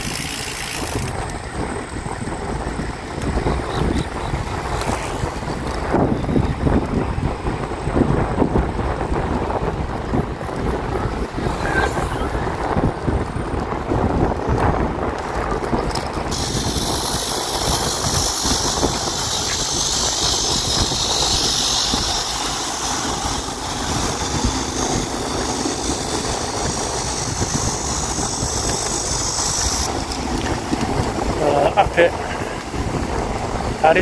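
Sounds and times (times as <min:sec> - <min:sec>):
wind buffeting microphone: 0:00.0 - 0:34.0
steady high hiss: 0:16.3 - 0:34.0.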